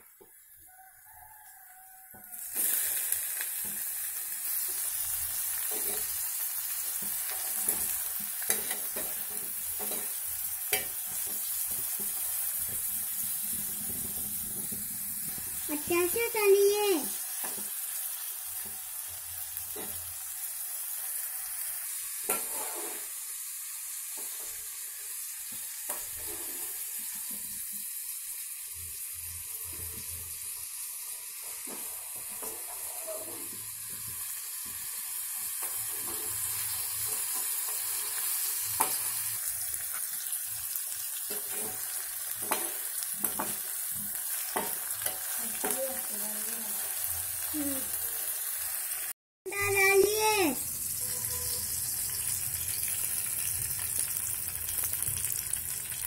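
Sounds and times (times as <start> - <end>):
vegetables sizzling in hot oil: 0.0 - 56.0
metal spoon tapping and scraping pan: 5.6 - 6.2, 6.9 - 14.8, 17.3 - 17.8, 19.7 - 20.1, 22.3 - 23.1, 31.6 - 33.6, 37.0 - 39.2, 41.3 - 46.1.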